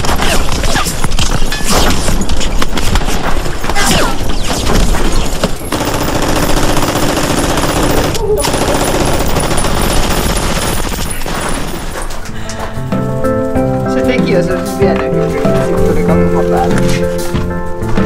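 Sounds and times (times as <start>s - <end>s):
rapid machine-gun fire: 0.0s - 1.2s, 2.6s - 11.8s.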